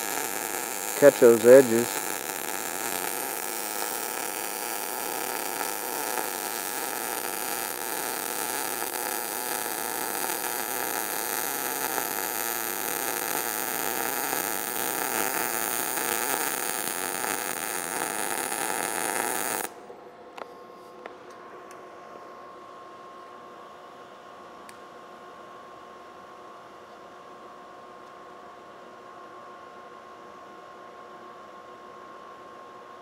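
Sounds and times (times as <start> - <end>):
welding arc hissing: 0.0 - 19.7.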